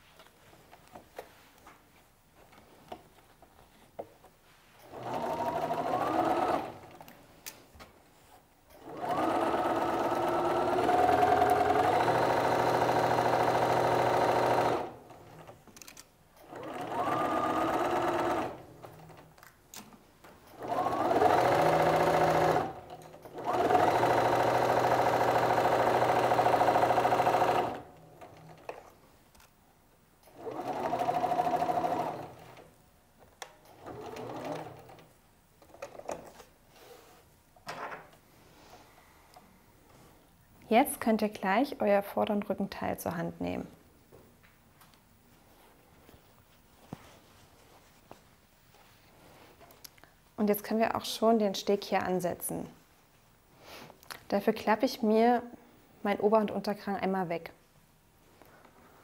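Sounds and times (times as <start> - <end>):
sewing machine whining: 4.9 - 7.0, 8.8 - 15.5, 16.4 - 19.1, 20.5 - 28.6, 30.3 - 32.6, 33.7 - 35.0.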